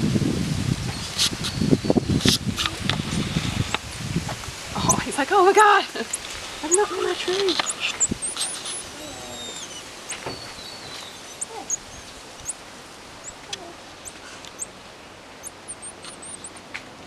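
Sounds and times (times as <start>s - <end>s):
tamarins chirping and whistling: 6.0s - 12.6s, 15.4s - 16.6s.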